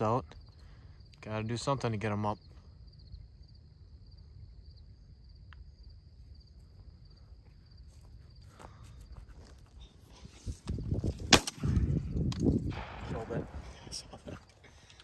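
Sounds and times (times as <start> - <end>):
crickets trilling: 0.0 - 15.0
footsteps crunching through stubble: 6.5 - 11.5.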